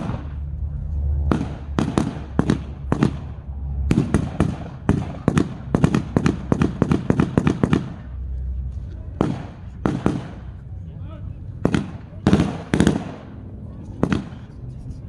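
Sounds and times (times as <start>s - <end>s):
blank gunfire shots: 1.3s - 3.3s, 3.9s - 8.1s, 9.2s - 10.5s, 11.6s - 13.4s, 14.0s - 14.4s.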